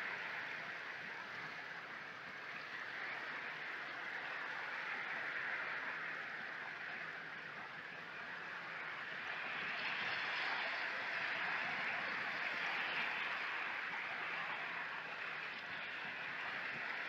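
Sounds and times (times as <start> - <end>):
sea waves on shore: 0.0 - 17.0.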